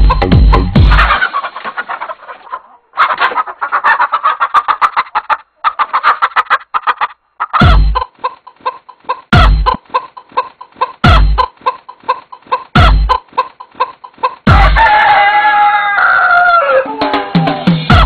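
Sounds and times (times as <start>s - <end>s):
heavy bass thump: 0.0s - 0.9s
chicken clucking: 0.8s - 17.3s.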